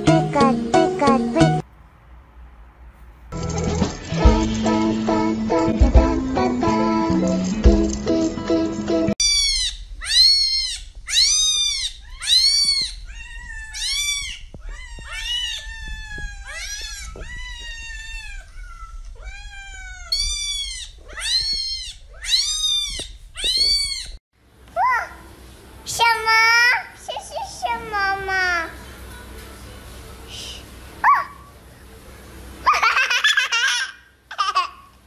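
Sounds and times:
cat meowing: 9.2s - 24.2s.

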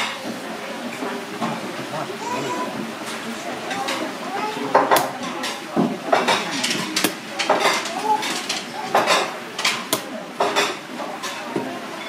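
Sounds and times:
utensils clinking on metal pans: 3.0s - 12.0s.

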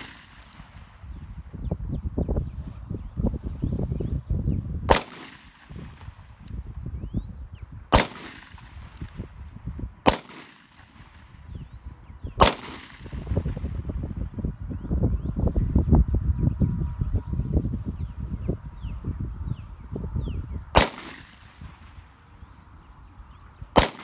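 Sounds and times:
handgun shots: 0.0s - 0.6s, 4.9s - 6.1s, 7.9s - 9.1s, 10.1s - 11.1s, 12.4s - 13.2s, 20.8s - 21.7s, 23.8s - 24.0s.

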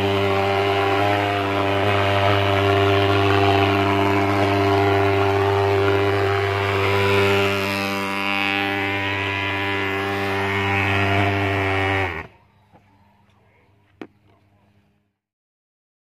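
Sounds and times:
pulse-jet fogging engine buzzing: 0.0s - 12.6s
faint hum: 0.0s - 15.2s.

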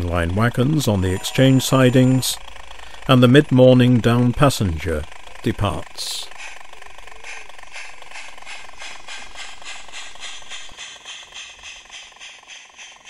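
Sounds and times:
model steam locomotive chuffing: 0.0s - 13.0s
steady steam hiss: 5.7s - 13.0s.

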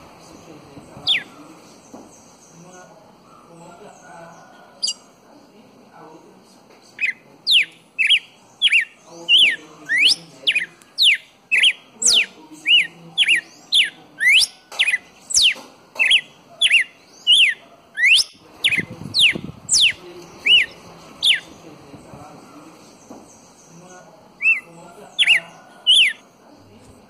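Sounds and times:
bird singing whistled notes: 1.0s - 1.3s, 7.0s - 21.5s, 24.4s - 26.3s.

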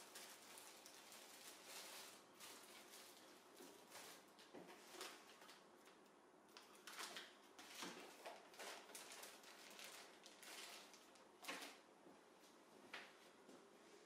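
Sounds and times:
plastic wrapping rustling: 0.0s - 6.0s, 6.6s - 11.8s.

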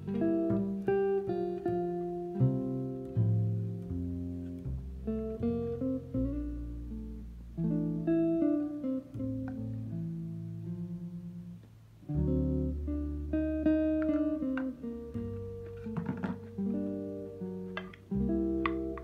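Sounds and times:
acoustic guitar plucked chords: 12.1s - 19.0s.

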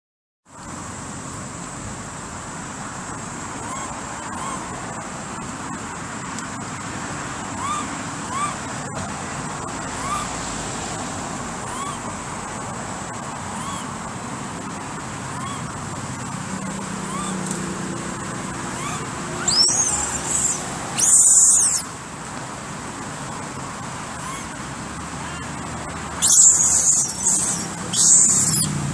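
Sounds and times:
road traffic noise: 0.5s - 28.9s
animal calls rising and falling: 16.9s - 17.4s, 18.6s - 21.9s, 26.2s - 28.9s.

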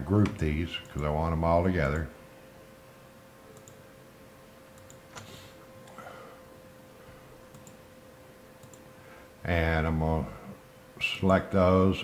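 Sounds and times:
computer mouse clicks: 3.6s - 3.8s, 4.8s - 6.0s, 7.5s - 7.8s, 8.6s - 8.8s.

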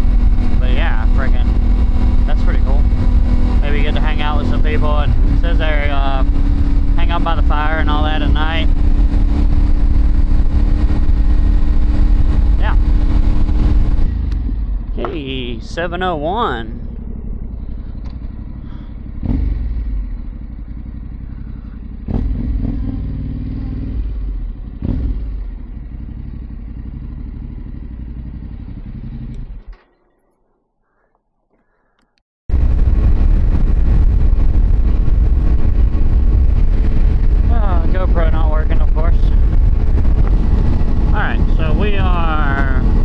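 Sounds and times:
wind rushing over microphone: 0.0s - 18.0s, 32.5s - 43.0s
motorcycle engine revving: 0.0s - 30.6s, 32.5s - 43.0s.

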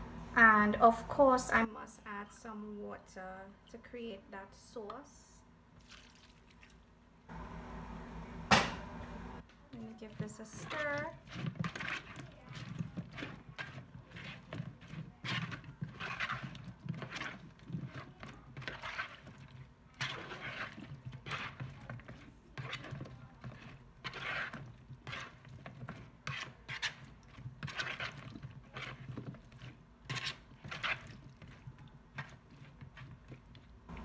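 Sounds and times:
spoon sloshing and scraping in bowl: 5.8s - 6.9s, 9.7s - 34.0s.

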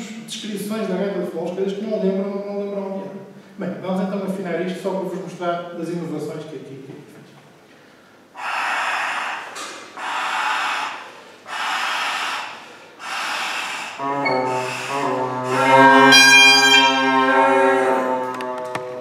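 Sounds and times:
breaths blown into bagpipe: 13.0s - 18.6s
bagpipe drone and chanter: 14.0s - 19.0s.

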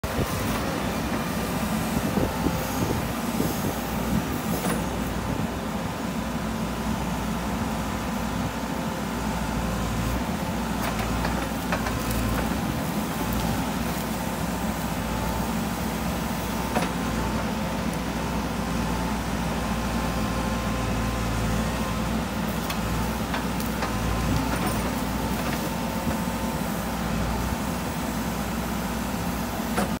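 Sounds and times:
diesel engine running under load: 0.0s - 30.0s.

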